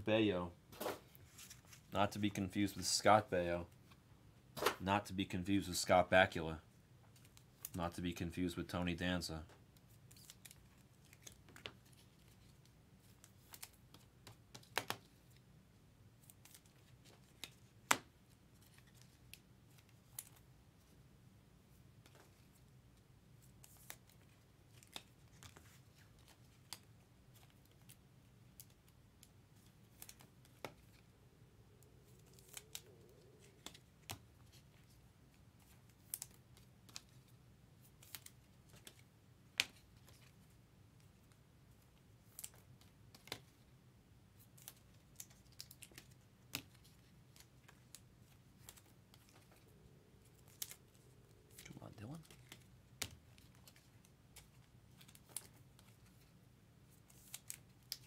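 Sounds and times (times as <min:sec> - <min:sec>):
cards being flipped by hand: 0:00.7 - 0:01.9, 0:04.6 - 0:04.8, 0:07.1 - 0:07.8, 0:09.7 - 0:15.4, 0:16.2 - 0:20.5, 0:22.0 - 0:22.7, 0:23.4 - 0:31.1, 0:31.8 - 0:43.7, 0:44.4 - 0:58.0.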